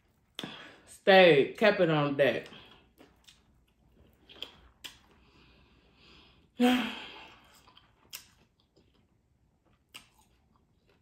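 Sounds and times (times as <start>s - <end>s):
woman sighing heavily: 6.6s - 7.3s.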